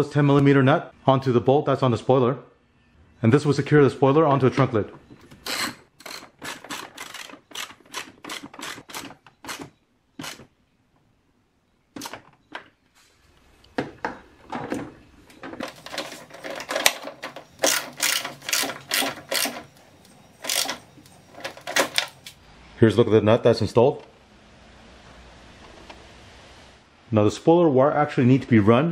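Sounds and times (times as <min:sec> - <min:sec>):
socket ratchet clicking: 0:05.4 - 0:10.5, 0:16.4 - 0:19.8, 0:20.4 - 0:22.4.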